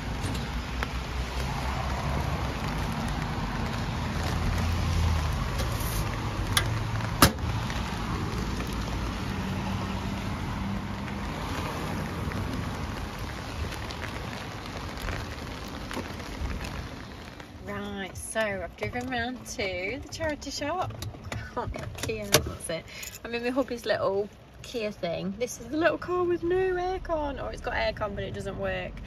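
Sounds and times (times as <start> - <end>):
heavy rain falling: 0.0 - 20.6.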